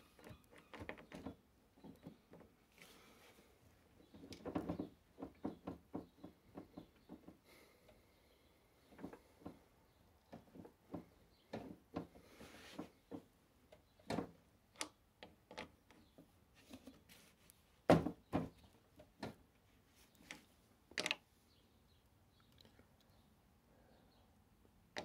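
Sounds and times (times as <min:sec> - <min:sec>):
metal and plastic parts knocking: 0:20.2 - 0:21.2.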